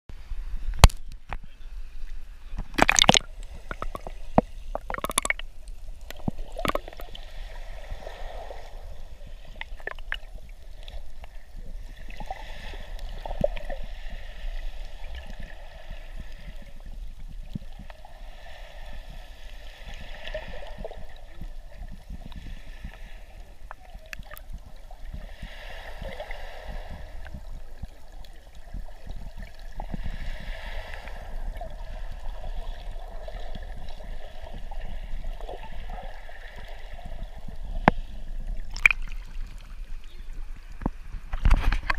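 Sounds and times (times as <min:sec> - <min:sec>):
muffled underwater gurgling: 0:02.5 - 0:13.9
sharp water splashes: 0:02.7 - 0:05.6, 0:38.7 - 0:39.6.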